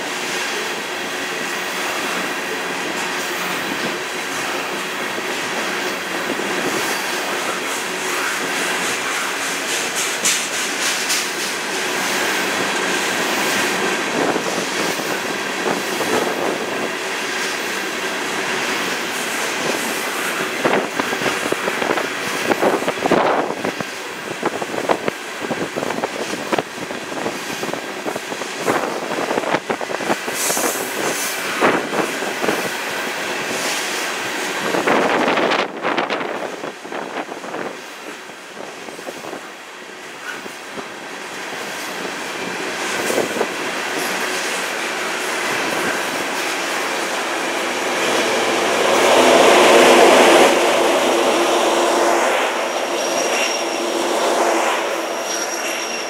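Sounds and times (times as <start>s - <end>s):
train wheels rumbling on rail: 0.0s - 56.0s
clanks over rail joints: 5.6s - 16.3s.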